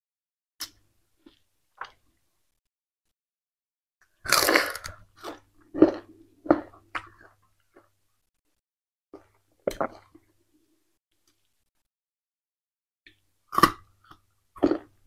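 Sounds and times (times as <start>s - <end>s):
sugarcane chewing and crunching: 4.3s - 7.3s.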